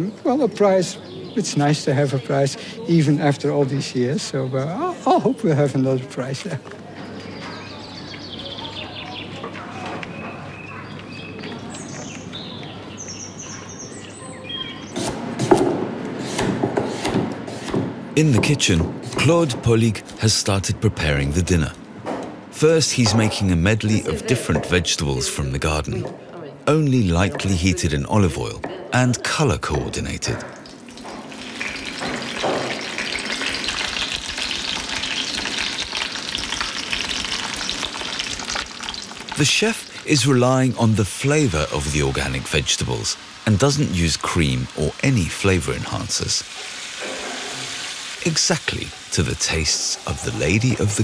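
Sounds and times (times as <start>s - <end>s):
small birds singing: 0.0s - 6.4s, 7.0s - 15.1s, 31.2s - 43.1s
outdoor hush: 0.0s - 51.0s
knife chopping on wooden board: 15.0s - 19.2s
vegetables sizzling in oil: 30.7s - 51.0s.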